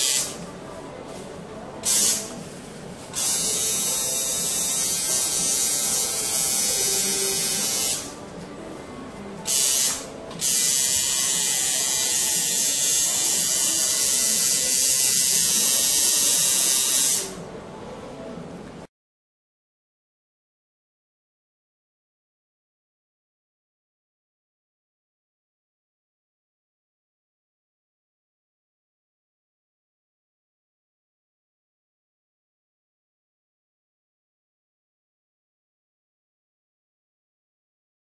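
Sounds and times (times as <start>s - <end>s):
tattoo machine buzzing: 0.0s - 0.4s, 1.8s - 2.3s, 3.1s - 8.2s, 9.4s - 17.4s.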